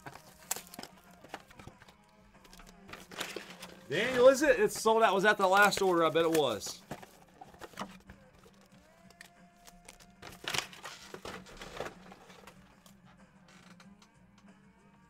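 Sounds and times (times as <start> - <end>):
faint country music: 0.0 - 15.0
cardboard box rustling and knocking: 5.6 - 8.1.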